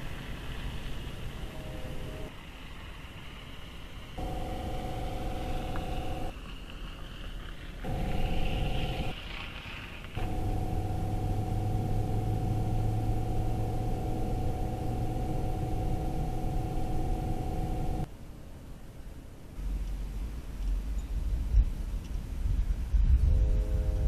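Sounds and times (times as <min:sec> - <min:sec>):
diesel locomotive engine running: 0:04.2 - 0:06.3, 0:07.9 - 0:09.1, 0:10.2 - 0:18.1.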